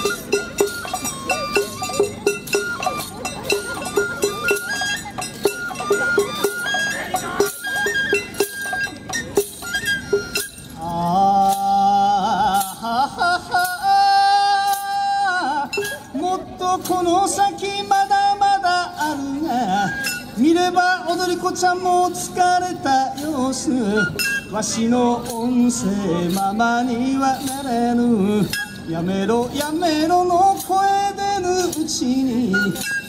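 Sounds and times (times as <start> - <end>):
steady clacking beat: 0.0 - 10.6
folk music melody: 0.0 - 33.0.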